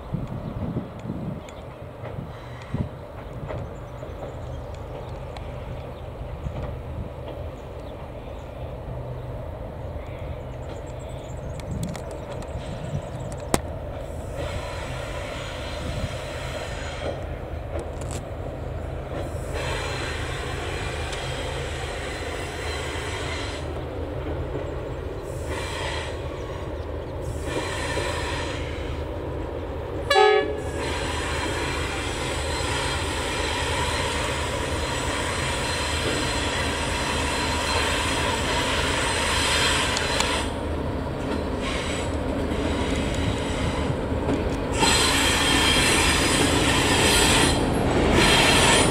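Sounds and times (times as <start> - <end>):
train rumbling on viaduct: 0.0 - 48.9
locomotive horn blast: 30.1 - 31.6, 44.8 - 46.5.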